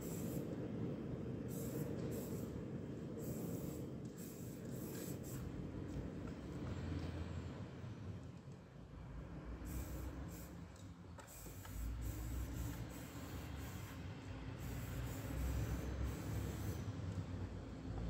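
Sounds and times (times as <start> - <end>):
spray paint can hissing: 0.0 - 0.6, 1.4 - 5.6, 9.6 - 17.5.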